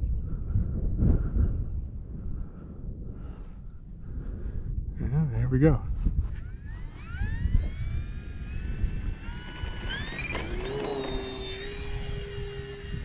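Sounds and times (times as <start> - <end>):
wind rumbling on microphone: 0.0 - 13.0
electric model plane motor whine: 6.2 - 13.0.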